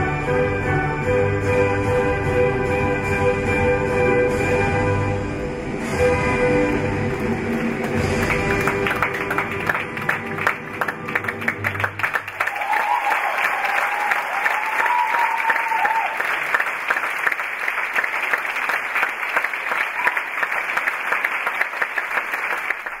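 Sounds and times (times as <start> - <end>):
audience applauding: 7.2 - 23.0.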